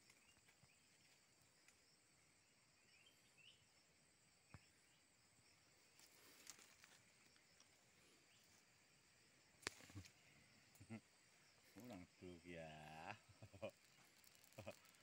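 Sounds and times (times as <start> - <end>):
light rustles: 5.9 - 7.8.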